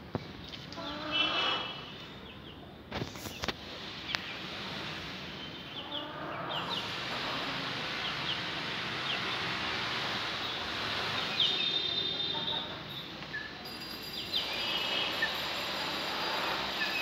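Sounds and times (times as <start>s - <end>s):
small birds chirping: 5.4s - 7.4s, 8.0s - 15.4s.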